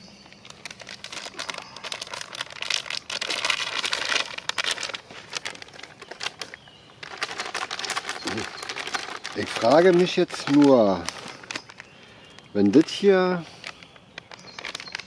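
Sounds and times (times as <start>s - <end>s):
plastic packaging crinkling and tearing: 0.3s - 15.0s.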